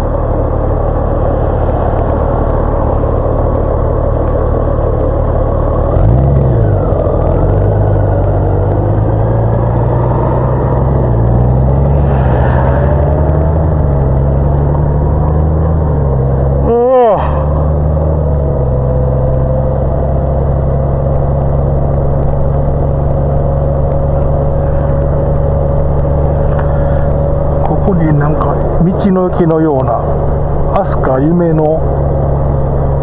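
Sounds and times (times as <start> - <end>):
motorcycle engine pulling away: 5.7 - 22.7.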